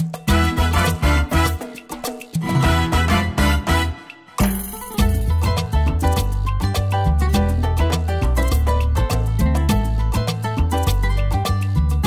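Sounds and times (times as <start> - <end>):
upbeat music with percussive beat: 0.0 - 12.0.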